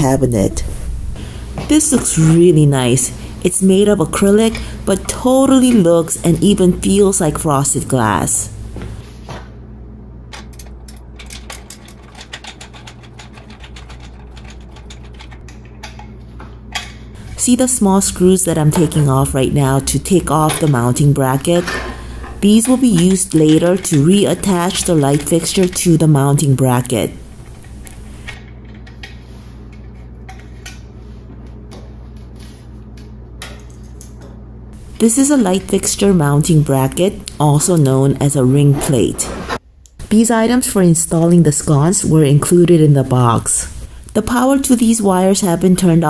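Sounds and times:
low steady hum: 0.0 - 46.0
screwdriver clicking on metal: 22.4 - 26.9.

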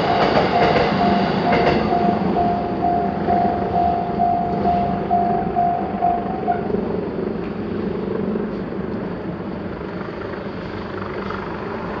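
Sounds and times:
level-crossing warning bell dinging: 0.0 - 6.7.

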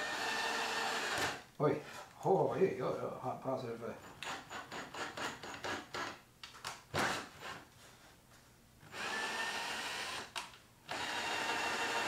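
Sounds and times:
cordless drill motor running: 0.0 - 1.4, 8.9 - 12.0.

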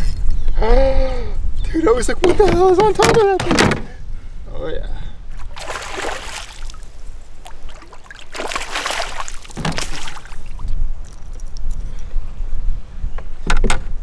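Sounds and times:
fish splashing in water: 5.4 - 11.6.

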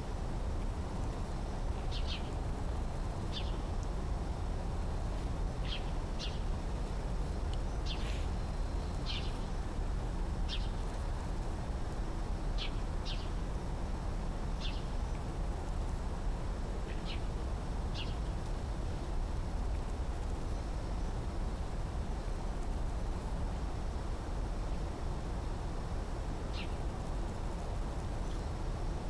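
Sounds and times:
bird chirping: 9.1 - 9.4.

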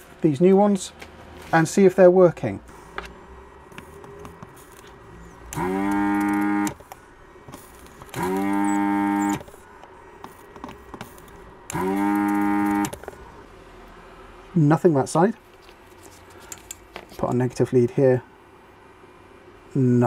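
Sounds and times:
vacuum pump spinning up: 5.4 - 6.8, 7.5 - 9.6, 11.7 - 13.2.

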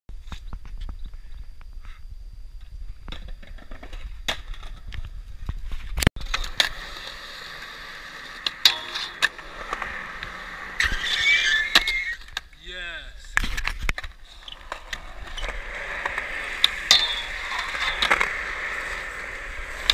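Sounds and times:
skateboard wheels rolling on concrete: 2.5 - 19.9
skateboard scrape: 3.4 - 12.5, 13.3 - 19.9
skateboard clacking on ground: 6.2 - 12.5, 13.4 - 19.9.

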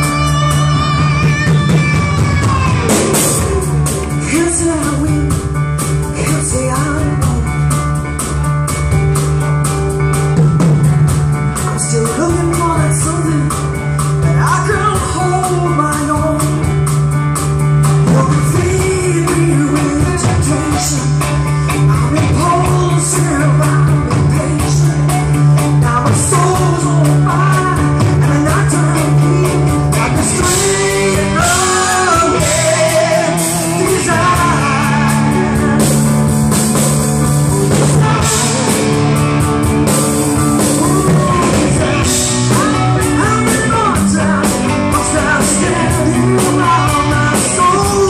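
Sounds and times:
woman singing lead vocal: 0.0 - 7.6, 11.8 - 16.7, 18.1 - 35.8, 37.7 - 39.1, 40.6 - 48.0
live rock band playing: 0.0 - 48.0.

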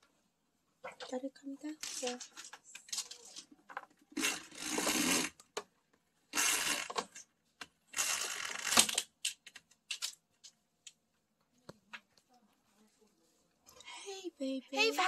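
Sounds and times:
curtain sliding along rod: 4.2 - 5.4.

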